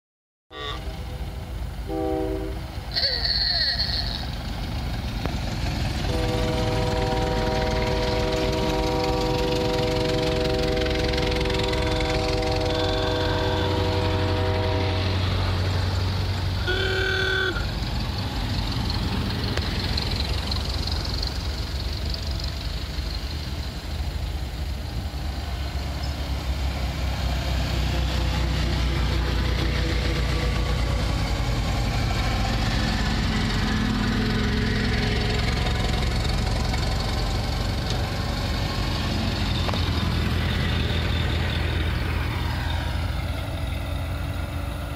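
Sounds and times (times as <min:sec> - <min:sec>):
old car engines driving past: 0:02.6 - 0:44.9.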